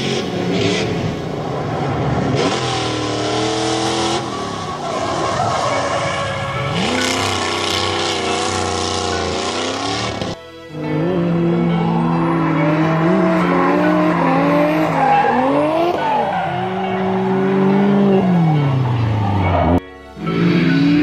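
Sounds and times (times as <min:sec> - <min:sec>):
car engine revving: 0:00.0 - 0:21.0
tyres scrubbing on asphalt: 0:11.7 - 0:17.4.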